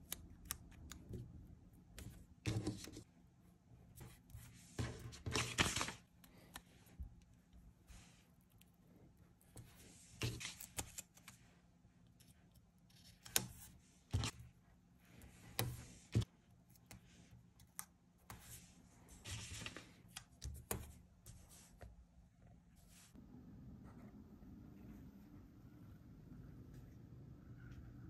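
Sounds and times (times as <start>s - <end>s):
sticker paper rustling: 4.0s - 6.6s, 9.5s - 11.5s.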